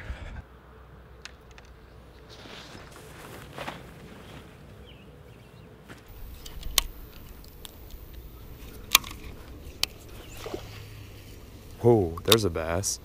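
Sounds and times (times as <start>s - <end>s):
low rumble: 0.0s - 0.6s.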